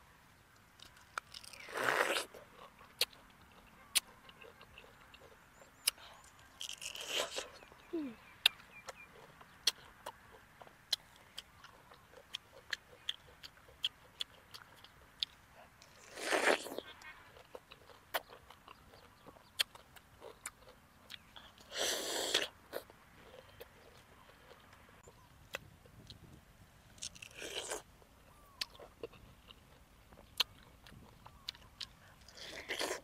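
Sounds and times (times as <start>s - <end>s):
wet chewing with mouth clicks: 0.7s - 33.0s
juicy bites into fruit: 5.9s - 7.6s.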